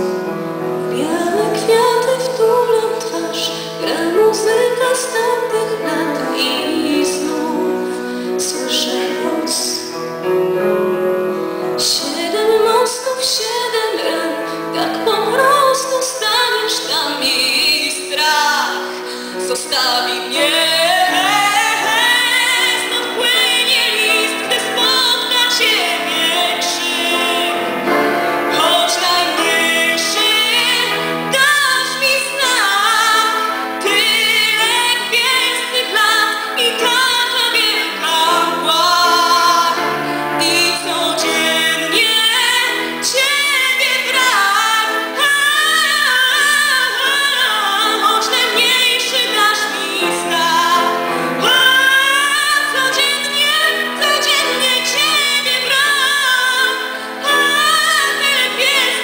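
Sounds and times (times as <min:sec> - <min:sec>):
woman singing into a microphone: 0:00.0 - 0:10.1, 0:11.8 - 0:59.0
instrumental accompaniment: 0:00.0 - 0:59.0.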